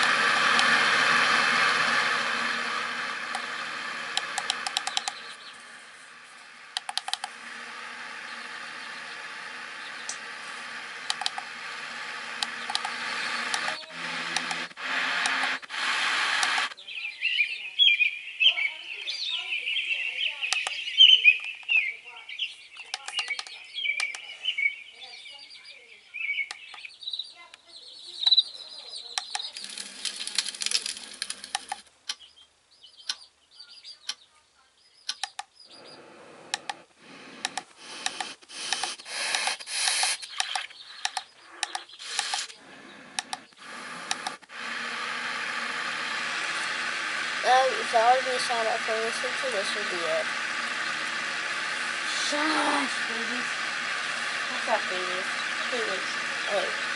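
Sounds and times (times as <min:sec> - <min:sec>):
birdsong chirping: 0:02.7 - 0:14.8, 0:16.4 - 0:44.5, 0:45.1 - 0:56.9
irregular clicks: 0:04.1 - 0:05.5, 0:06.7 - 0:07.4, 0:08.5 - 0:10.2, 0:11.0 - 0:16.8, 0:20.5 - 0:20.8, 0:22.8 - 0:24.3, 0:29.2 - 0:32.2, 0:35.0 - 0:35.6, 0:36.5 - 0:47.4
steady even hiss: 0:35.7 - 0:40.4, 0:45.5 - 0:56.9.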